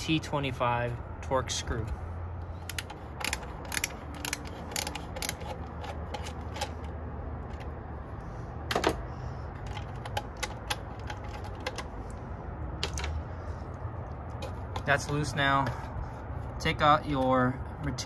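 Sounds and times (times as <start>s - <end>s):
screwdriver clicking: 2.6s - 6.9s.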